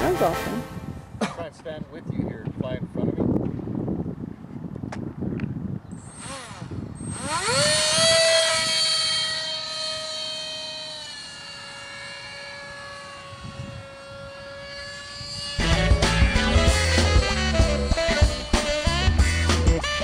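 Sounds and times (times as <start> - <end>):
electric ducted fan motor whine: 5.8 - 20.0.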